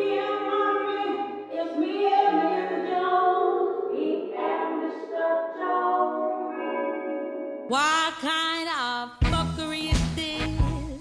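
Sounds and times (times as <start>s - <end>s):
choir singing held notes: 0.0s - 7.5s.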